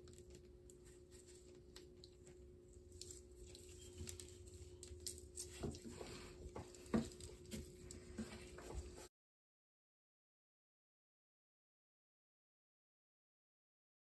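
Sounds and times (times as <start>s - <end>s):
scratching and scraping on tiles: 2.8s - 9.1s.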